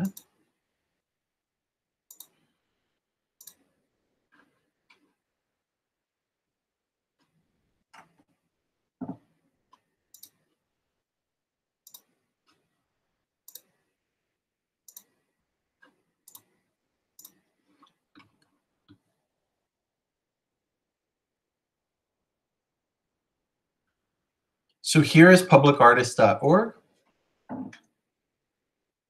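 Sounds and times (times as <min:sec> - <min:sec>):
computer clicks: 0:02.1 - 0:02.4, 0:03.4 - 0:03.7, 0:10.1 - 0:10.4, 0:11.8 - 0:12.1, 0:13.5 - 0:13.8, 0:14.9 - 0:15.2, 0:16.2 - 0:16.5, 0:17.2 - 0:17.4.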